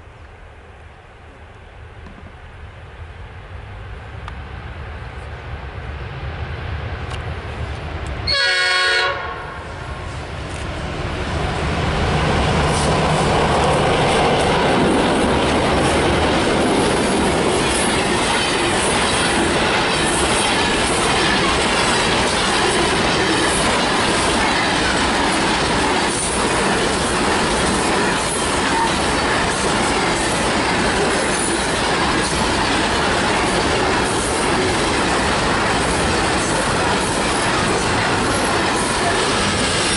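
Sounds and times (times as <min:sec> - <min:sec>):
diesel locomotive engines rumbling: 0:00.0 - 0:39.9
locomotive horn blast: 0:08.2 - 0:09.7
train wheels clicking over rails: 0:09.9 - 0:39.9.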